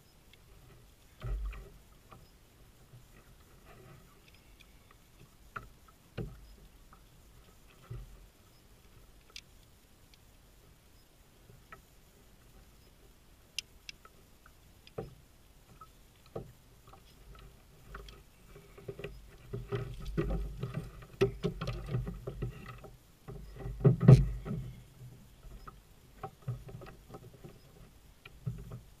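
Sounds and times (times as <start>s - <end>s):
fish handling rustling and knocks: 16.3s - 28.9s
thump in kayak: 23.8s - 24.7s.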